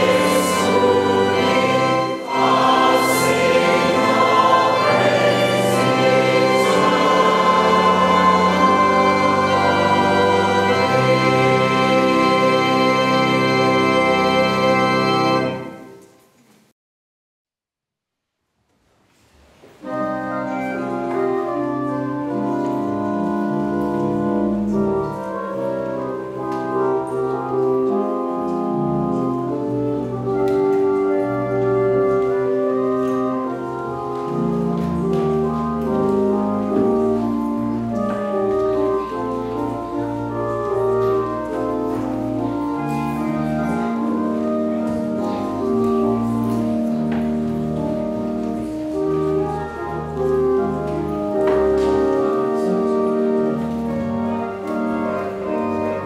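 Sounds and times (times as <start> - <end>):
organ playing slow chords: 0.0 - 16.2, 19.8 - 56.0.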